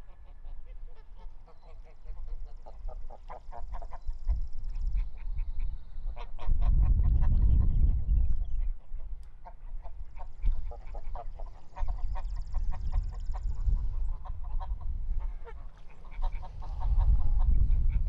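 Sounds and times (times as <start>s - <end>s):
geese honking: 0.0s - 4.2s, 9.4s - 18.0s
low rumble: 16.1s - 18.0s.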